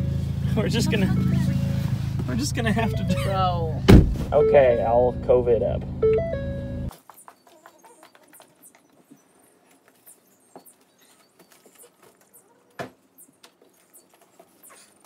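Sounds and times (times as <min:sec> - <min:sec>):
car liftgate thump: 0:03.9 - 0:04.3.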